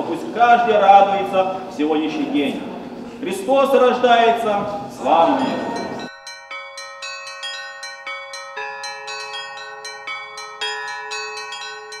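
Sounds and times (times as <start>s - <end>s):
church bells ringing: 5.0s - 12.0s
low bell striking: 5.3s - 8.6s.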